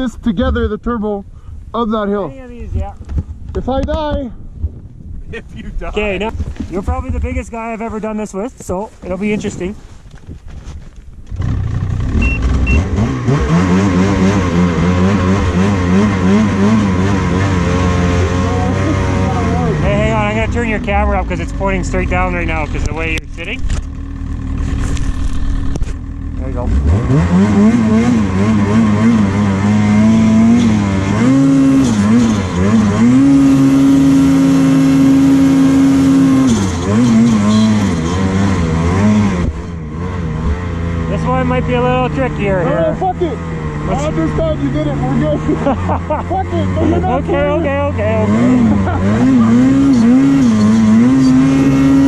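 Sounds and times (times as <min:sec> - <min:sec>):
snowmobile engine revving: 0:05.3 - 0:08.4, 0:11.3 - 0:52.0
short high beeps: 0:12.2 - 0:12.9.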